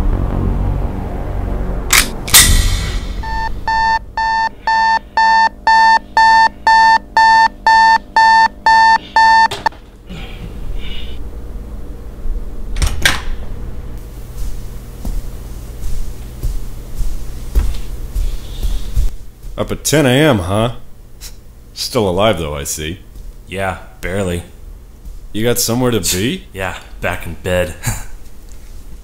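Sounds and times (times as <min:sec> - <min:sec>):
alarm clock beeping: 0:03.2 - 0:09.7.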